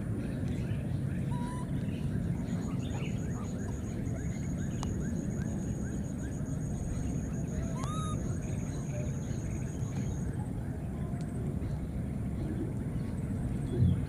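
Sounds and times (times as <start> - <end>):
faint chirps: 0.5 - 10.4.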